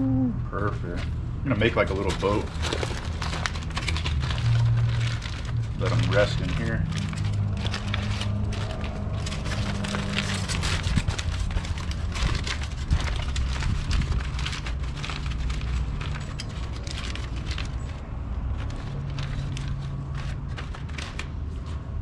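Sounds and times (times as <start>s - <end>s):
steady low hum: 0.0s - 16.1s
aluminium foil crinkling: 1.5s - 22.0s.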